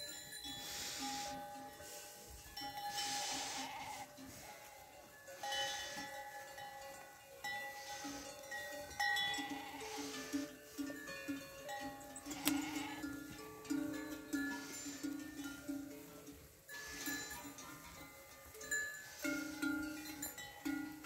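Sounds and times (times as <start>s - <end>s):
sheep bells jangling: 0.0s - 21.0s
sheep bleating: 3.0s - 4.7s, 9.3s - 10.4s, 12.2s - 13.2s.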